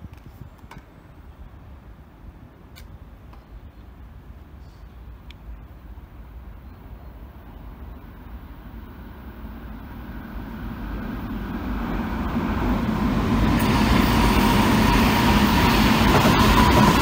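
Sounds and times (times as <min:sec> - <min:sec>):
electric train approaching: 0:05.8 - 0:17.0.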